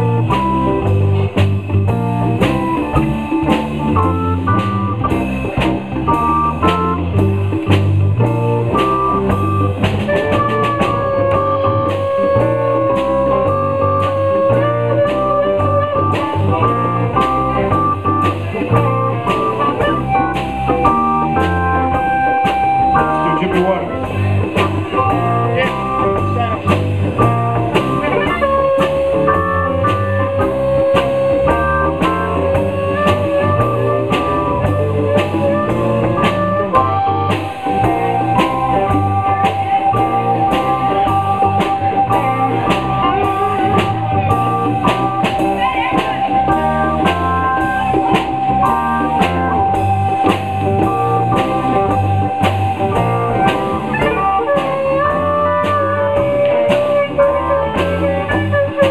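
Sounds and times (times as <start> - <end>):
live blues band: 0.0 - 58.9
long held wavering notes: 8.9 - 26.6, 27.4 - 58.9.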